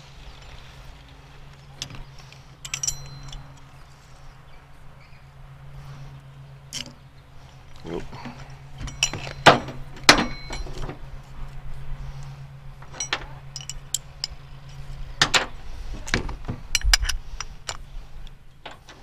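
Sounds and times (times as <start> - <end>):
low steady hum: 0.0 - 19.0
metal parts clinking: 1.7 - 4.2, 6.7 - 7.0, 7.6 - 11.1, 12.8 - 17.8.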